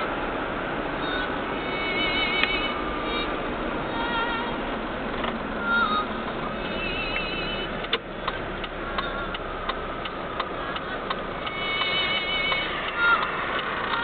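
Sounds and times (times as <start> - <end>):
road traffic noise: 0.0 - 14.0
regular clicking: 7.8 - 14.0.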